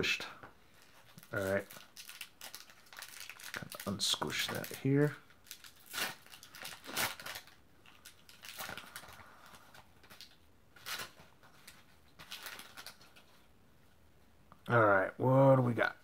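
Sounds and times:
foil wrapper crinkling: 0.8s - 13.4s.

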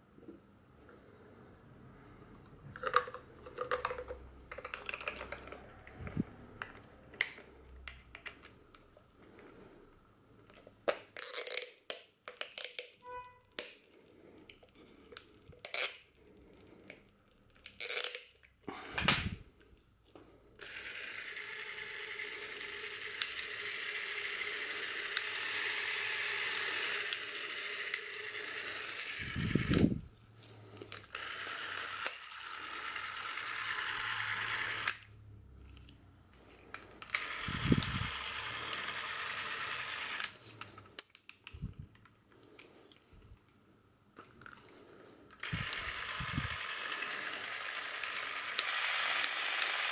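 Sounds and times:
camera motor whirring: 20.6s - 30.1s, 31.0s - 35.1s, 37.0s - 40.7s, 45.4s - 49.9s.

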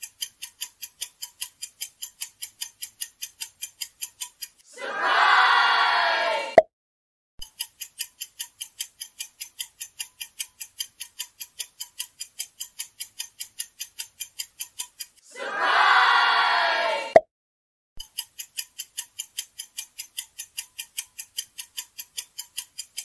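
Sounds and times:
clock ticking: 0.0s - 4.6s, 7.4s - 15.3s, 18.0s - 23.0s
voices cheering: 4.7s - 6.6s, 15.2s - 17.2s.

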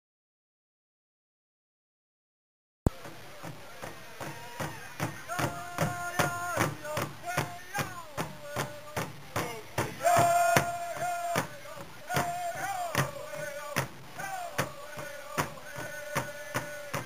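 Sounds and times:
large hand drum steady beat: 3.0s - 17.0s
group singing high held notes: 3.8s - 17.0s.

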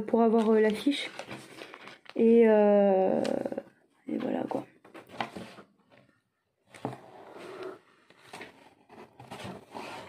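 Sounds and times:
plastic packaging rustling: 0.2s - 2.5s.

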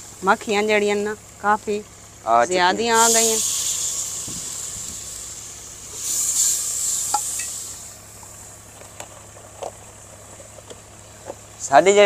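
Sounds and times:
masala sizzling in a pot: 3.0s - 8.8s.

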